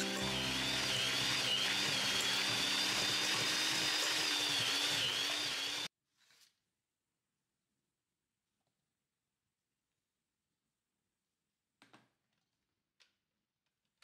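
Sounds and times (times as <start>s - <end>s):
electric hand mixer whining: 0.0s - 5.9s.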